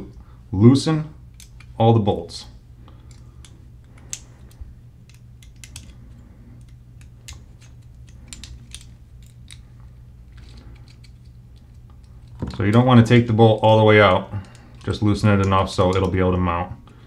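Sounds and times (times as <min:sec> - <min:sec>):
steady low hum: 0:00.0 - 0:17.0
small metal parts clicking: 0:01.3 - 0:01.8, 0:02.9 - 0:09.7, 0:10.3 - 0:12.4.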